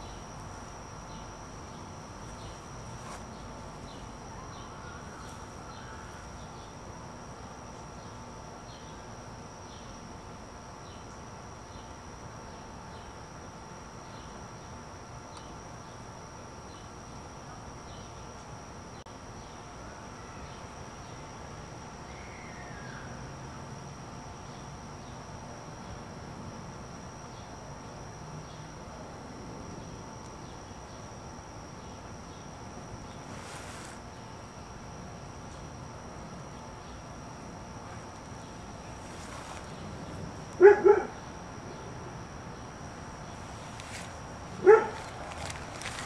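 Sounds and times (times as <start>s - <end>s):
crickets trilling: 0.0s - 46.0s
dog barking: 40.6s - 41.2s, 44.6s - 45.0s.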